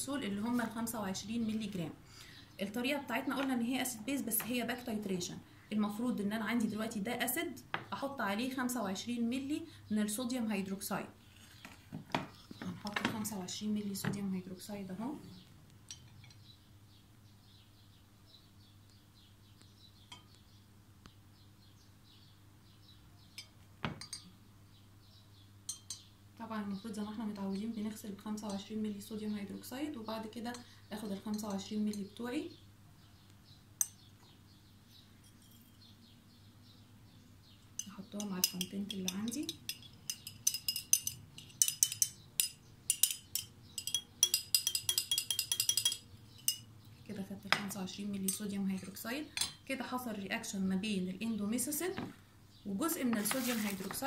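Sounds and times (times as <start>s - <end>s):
small bird chirping: 15.2s - 47.2s
glass clinking against glass flask: 23.4s - 24.3s, 25.7s - 26.1s, 37.8s - 46.7s.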